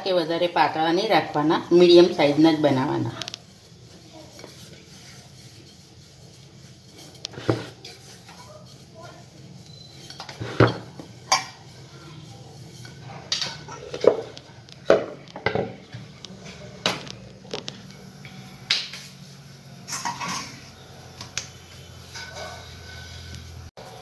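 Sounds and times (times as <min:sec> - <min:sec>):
kitchen utensils knocking and clattering: 0:07.0 - 0:08.8, 0:09.9 - 0:11.8, 0:12.6 - 0:18.0, 0:19.8 - 0:23.0.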